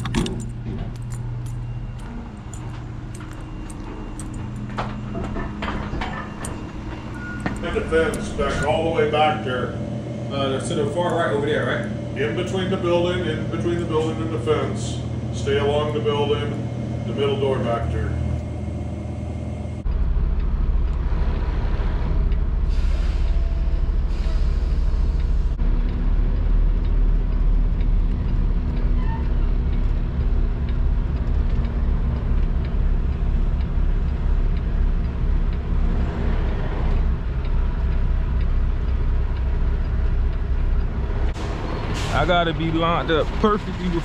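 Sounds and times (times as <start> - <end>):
diesel truck engine running: 0.0 - 44.0
air brake hisses: 22.7 - 25.2, 41.4 - 42.3.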